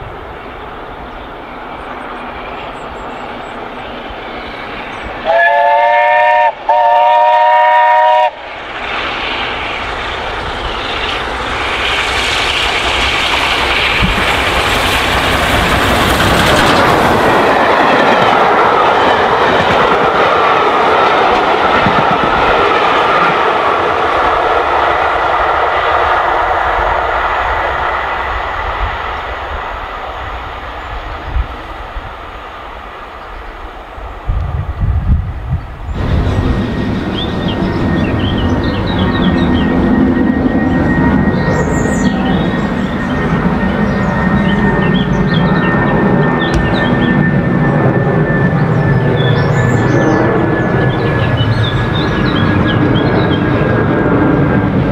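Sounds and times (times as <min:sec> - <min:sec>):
train running past at speed: 0:00.0 - 0:54.9
steam locomotive whistle blasts: 0:05.2 - 0:08.4.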